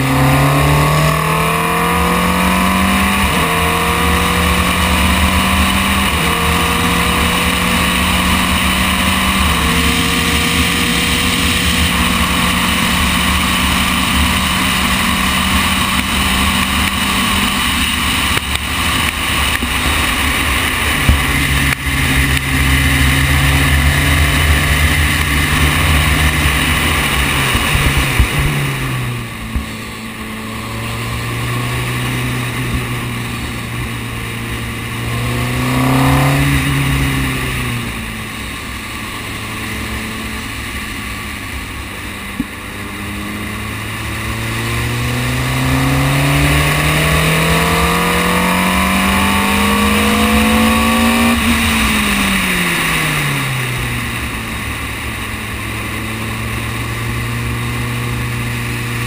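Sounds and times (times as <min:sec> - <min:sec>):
racing car engine running hard: 0:00.0 - 0:59.0
wind rush: 0:16.6 - 0:38.2.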